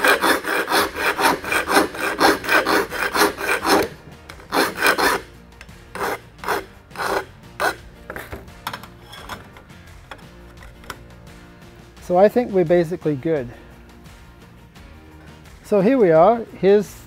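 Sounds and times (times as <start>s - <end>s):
file rasping on metal: 0.0s - 8.4s.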